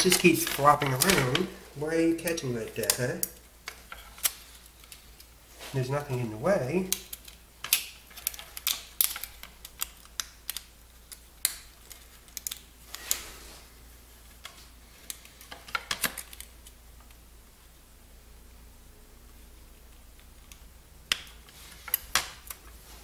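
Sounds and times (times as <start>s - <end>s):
plastic rustling: 0.0s - 16.6s.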